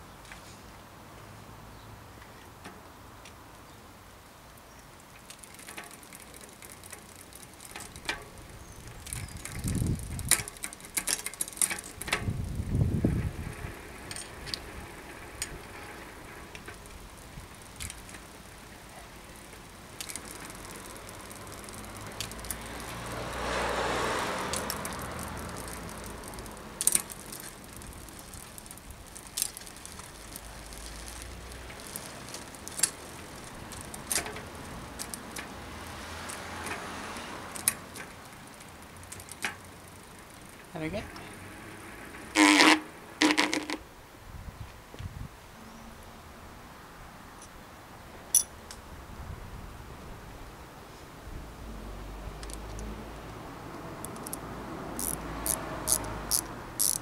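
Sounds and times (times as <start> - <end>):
bicycle drivetrain clicks and rattles: 4.6 - 43.8, 52.4 - 57.0.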